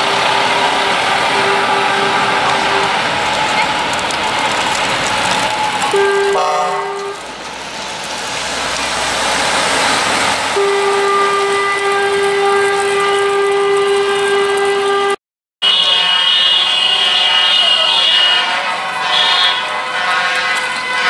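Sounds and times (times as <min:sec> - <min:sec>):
truck horn blasts: 0:00.0 - 0:03.1, 0:05.9 - 0:07.2, 0:10.5 - 0:21.0
higher truck horn: 0:00.0 - 0:03.2, 0:05.9 - 0:07.2, 0:10.5 - 0:21.0
passing lorries: 0:00.0 - 0:15.1, 0:15.7 - 0:21.0.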